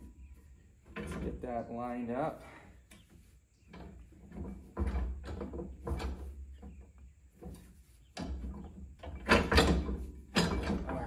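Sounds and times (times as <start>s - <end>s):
plow clunking and scraping: 0.6s - 2.2s, 2.8s - 11.0s.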